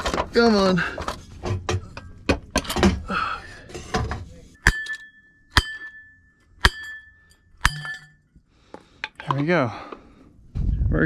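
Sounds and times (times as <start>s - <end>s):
metal knocks and clanks: 1.0s - 8.2s
ringing metal strike: 4.6s - 8.3s.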